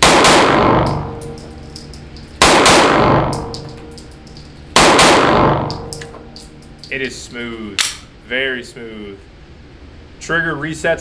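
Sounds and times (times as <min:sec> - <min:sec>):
pistol shots echoing indoors: 0:00.0 - 0:06.8.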